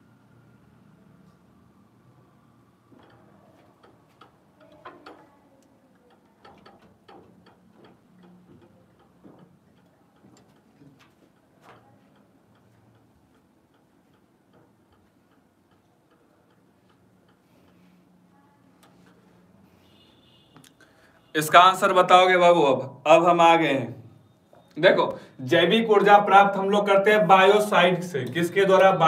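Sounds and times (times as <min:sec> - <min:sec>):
faint clicks and taps: 0:02.8 - 0:20.9.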